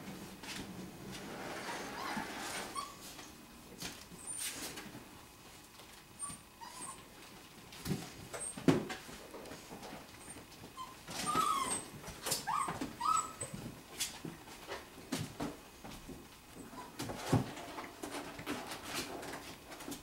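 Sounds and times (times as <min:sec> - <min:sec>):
puppies whimpering and squealing: 0:01.7 - 0:03.2, 0:06.2 - 0:07.1, 0:10.2 - 0:13.6.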